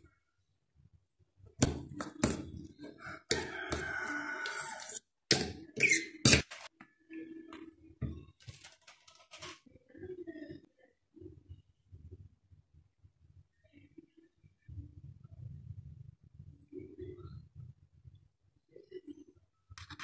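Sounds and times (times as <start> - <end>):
fork scraping through vegetables: 2.1 - 6.7.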